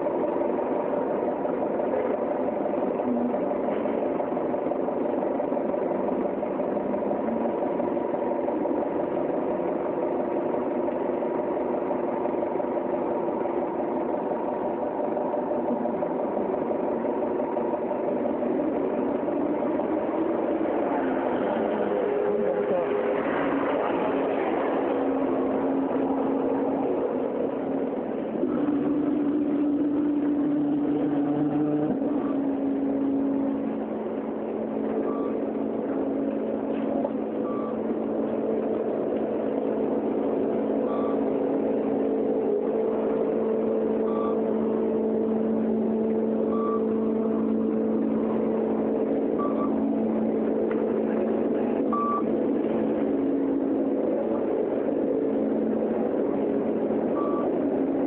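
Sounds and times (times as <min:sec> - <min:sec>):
bus engine droning: 0:00.0 - 0:58.0
short high beeps: 0:35.0 - 0:35.4, 0:37.4 - 0:37.8, 0:40.9 - 0:41.2, 0:44.0 - 0:44.5, 0:46.5 - 0:47.0, 0:49.4 - 0:49.8, 0:51.9 - 0:52.3, 0:57.2 - 0:57.6.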